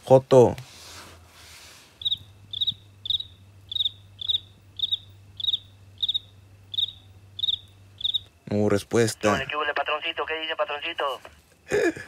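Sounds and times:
cricket chirping: 1.9 - 9.9
radio channel low hum: 1.9 - 11.5.

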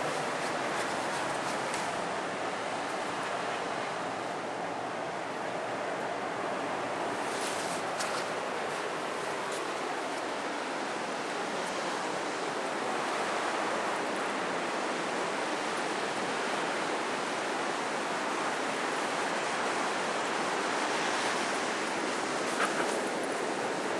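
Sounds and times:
sea surf rushing on beach: 0.0 - 23.9.

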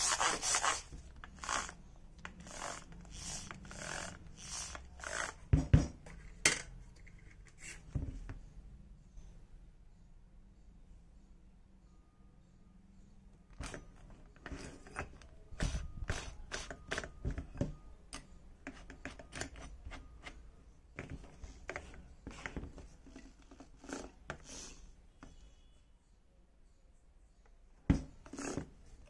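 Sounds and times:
drill chuck ratcheting clicks: 1.3 - 5.4.

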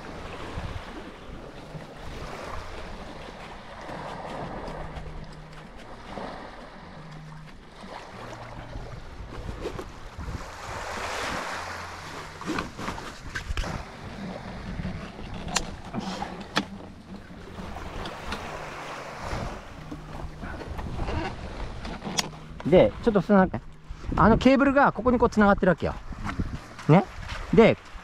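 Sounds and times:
small waves washing in: 0.0 - 24.2
wind rumbling on microphone: 0.0 - 28.0
sharp clicks and knocks: 15.1 - 17.3.

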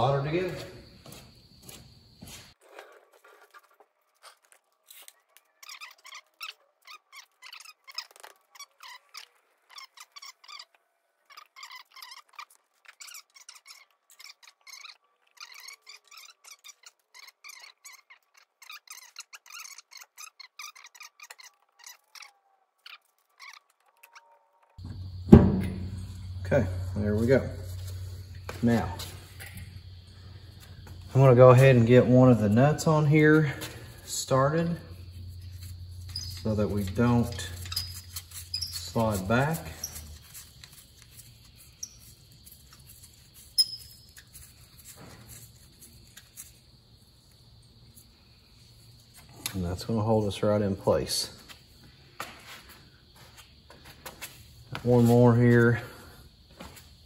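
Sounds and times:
high-pitched metal squeaks: 34.8 - 40.1.

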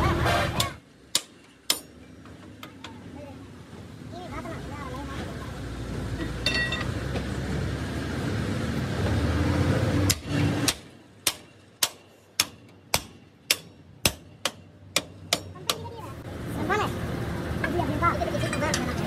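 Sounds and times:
hammer striking metal: 0.2 - 2.7, 6.2 - 7.0, 10.1 - 16.0.

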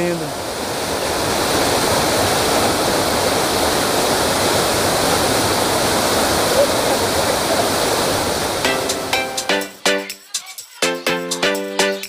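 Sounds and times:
waterfall pouring into a pool: 0.0 - 9.1.

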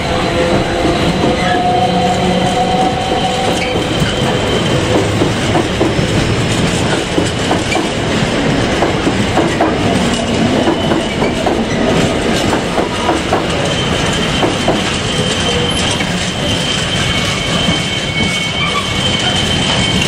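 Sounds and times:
high wheel squeal: 0.0 - 6.1, 12.9 - 20.0
train wheels clicking over rail joints: 0.0 - 20.0.

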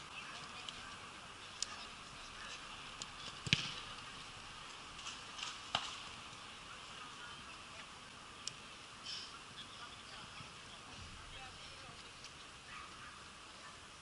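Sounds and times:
outdoor background noise: 0.0 - 14.0
football kicked thuds: 3.4 - 3.8.

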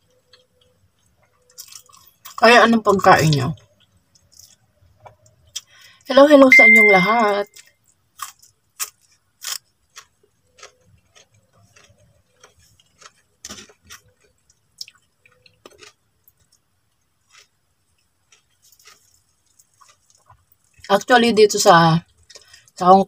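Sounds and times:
chewing and lip-smacking: 0.0 - 2.4, 3.3 - 5.8, 7.6 - 20.9
fingers picking at food: 7.6 - 16.6, 17.2 - 20.9.

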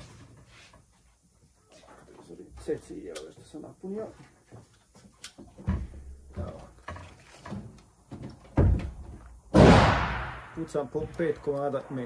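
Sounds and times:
gunshot with echo: 9.5 - 10.8.

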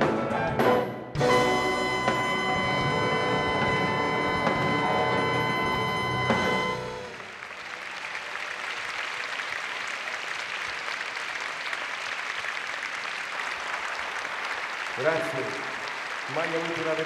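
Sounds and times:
band final chord: 1.2 - 7.1
audience applauding: 2.0 - 17.0.

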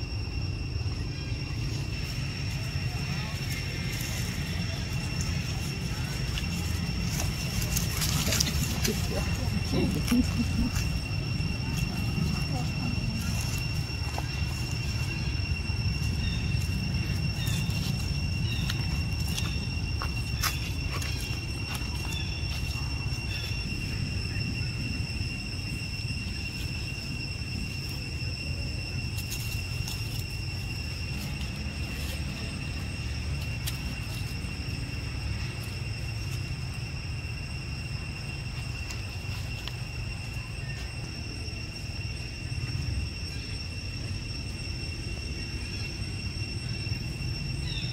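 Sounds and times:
low rumble: 0.0 - 47.6
high insect drone: 0.0 - 47.9
faint chirps and clicks: 16.0 - 23.6.

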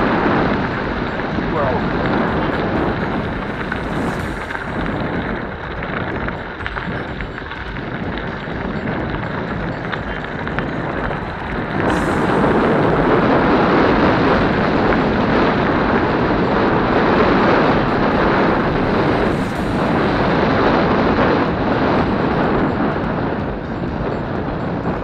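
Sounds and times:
wind buffeting microphone: 0.0 - 25.0
bike tyres crunching on gravel: 1.9 - 16.0.

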